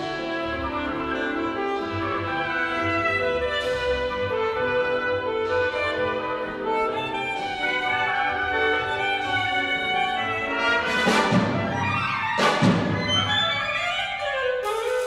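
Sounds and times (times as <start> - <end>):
wind band playing: 0.0 - 15.0
loud percussion crashes: 10.9 - 13.6.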